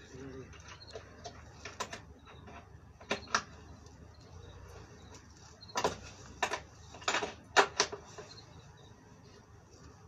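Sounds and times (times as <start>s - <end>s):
sharp wooden knocks: 5.7s - 8.1s.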